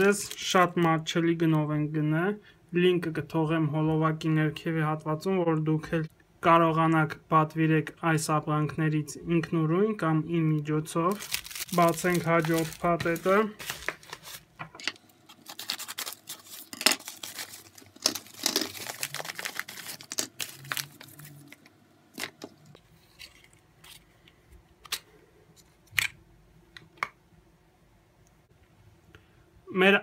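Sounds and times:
packaging rustling and crinkling: 0.0s - 1.0s, 11.1s - 14.6s, 15.2s - 24.1s
padded mailer tearing: 11.1s - 14.4s, 15.3s - 21.4s.

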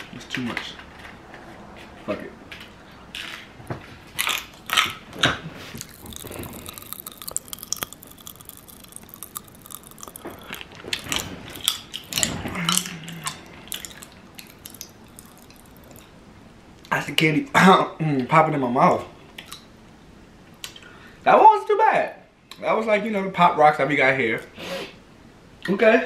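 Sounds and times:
chewing: 0.6s - 16.2s
popping candy crackling: 4.2s - 16.1s.

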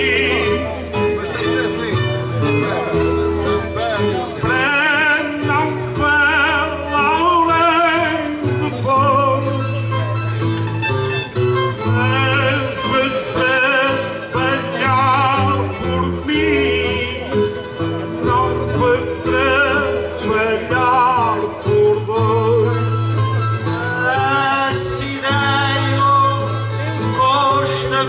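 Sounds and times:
man singing with vibrato: 0.0s - 28.0s
plucked acoustic guitars: 0.0s - 28.0s.

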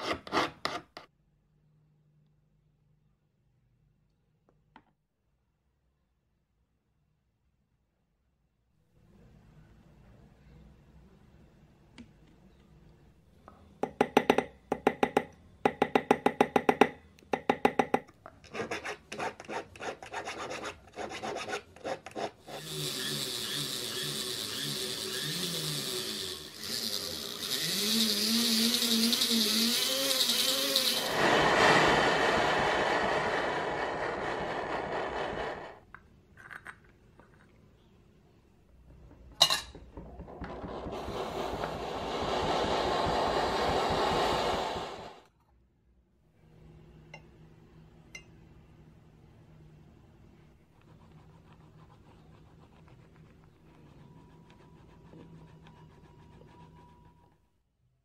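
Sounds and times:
file rasping on metal: 0.0s - 1.0s, 18.5s - 26.9s
liquid bubbling and hissing: 40.6s - 45.2s.

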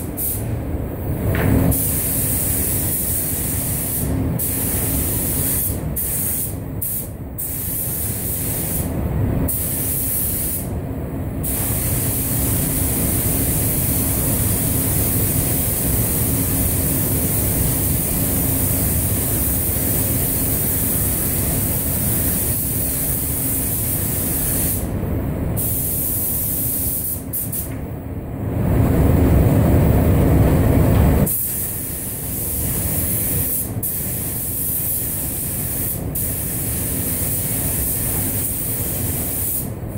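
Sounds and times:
spray gun hissing: 0.0s - 0.5s, 1.7s - 8.9s, 9.5s - 10.7s, 11.4s - 24.9s, 25.6s - 27.7s, 31.3s - 39.7s
ventilation drone: 0.0s - 39.9s
deep rush of air: 28.2s - 31.3s.

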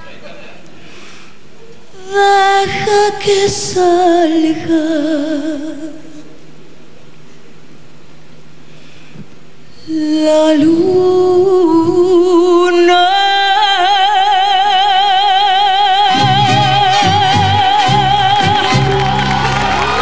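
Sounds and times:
woman singing high note with vibrato: 2.0s - 6.4s, 9.8s - 20.0s
guitars strumming chords: 16.1s - 20.0s.

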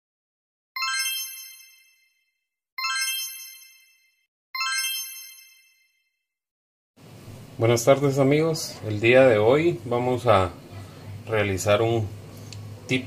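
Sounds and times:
bright chime: 0.8s - 6.2s.

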